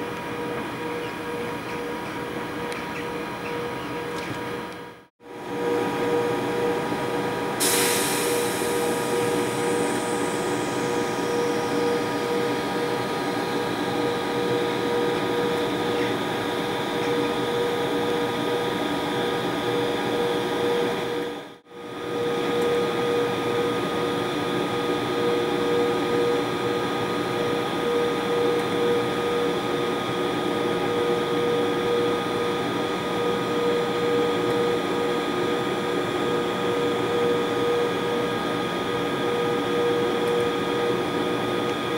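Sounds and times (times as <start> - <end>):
locomotive fans humming: 0.0 - 21.4
high whine: 5.5 - 41.9.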